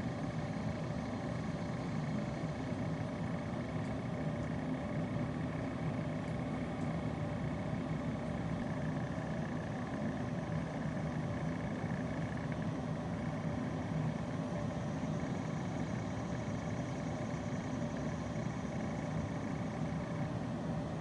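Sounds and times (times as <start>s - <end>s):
steady mechanical hum: 0.0s - 21.0s.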